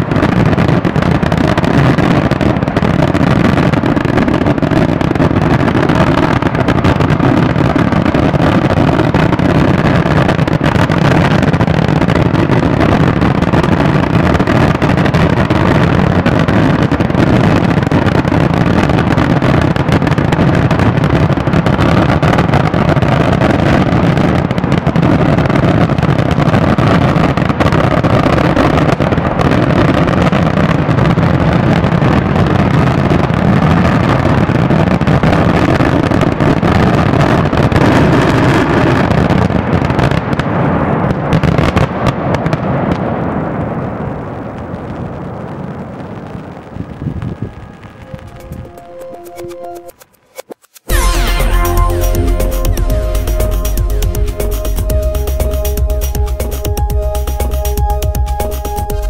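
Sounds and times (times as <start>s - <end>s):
fireworks bangs and crackling: 0.0s - 59.0s.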